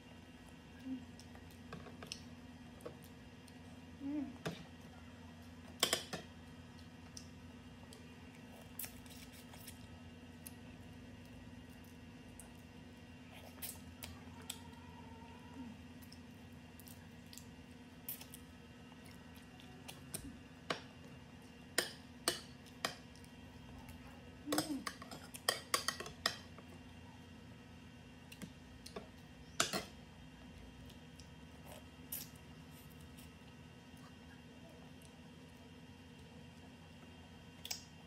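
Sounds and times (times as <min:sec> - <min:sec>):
steady low hum: 0:00.0 - 0:38.0
chewing clicks: 0:37.6 - 0:37.9.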